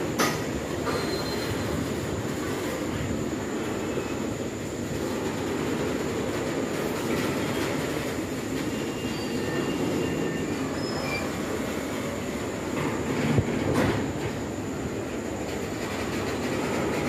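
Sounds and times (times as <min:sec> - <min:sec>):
train wheels rumbling on track: 0:00.0 - 0:17.0
faint wheel squeals: 0:00.8 - 0:02.0, 0:08.5 - 0:11.9.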